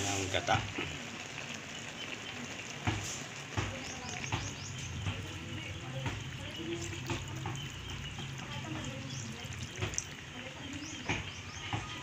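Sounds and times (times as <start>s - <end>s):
coconut milk pouring into wok: 0.0s - 12.0s
stew bubbling in pan: 0.0s - 12.0s.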